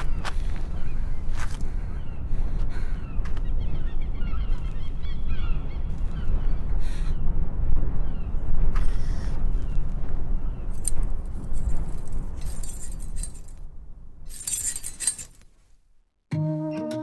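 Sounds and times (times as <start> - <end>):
coins jingling: 10.8 - 13.6, 14.3 - 15.4
music with sustained tones: 16.3 - 17.0.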